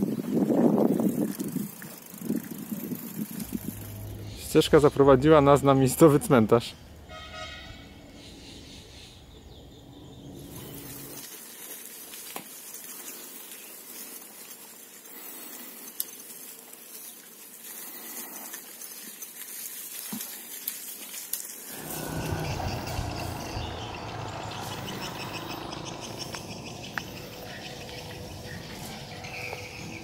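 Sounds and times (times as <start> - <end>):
low rough noise: 2.5 - 6.0, 21.7 - 29.8
steady high hiss: 21.2 - 30.0.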